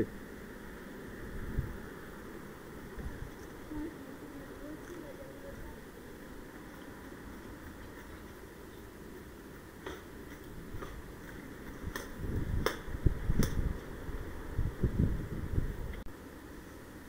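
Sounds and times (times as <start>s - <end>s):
sharp clicks or snaps: 11.9s - 13.6s.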